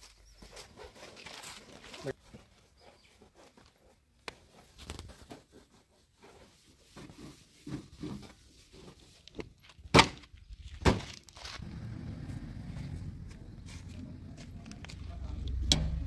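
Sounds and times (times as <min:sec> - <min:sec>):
low rumble: 0:11.6 - 0:16.0.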